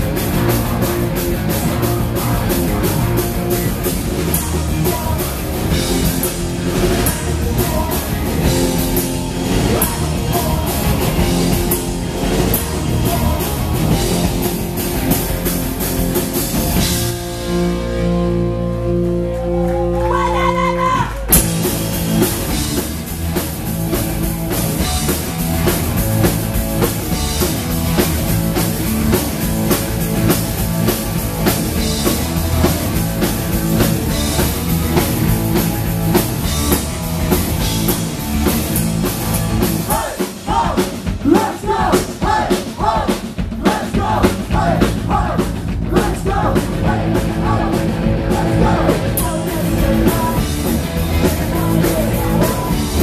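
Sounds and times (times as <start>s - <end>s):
punk rock band playing: 0.0s - 53.0s
person singing: 4.1s - 6.0s, 6.8s - 8.8s, 9.6s - 11.6s, 12.4s - 14.0s, 39.9s - 53.0s.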